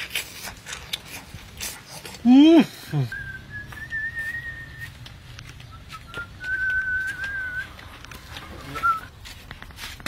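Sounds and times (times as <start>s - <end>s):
person whistling: 2.9s - 5.0s, 5.7s - 7.8s.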